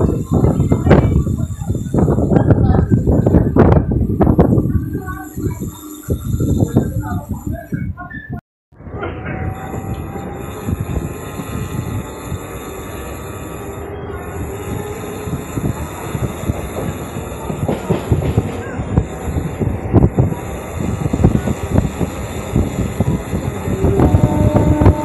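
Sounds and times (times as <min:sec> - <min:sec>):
train wheel rumble: 0:00.0 - 0:08.1, 0:08.8 - 0:25.0
wheels clacking over rails: 0:08.9 - 0:25.0.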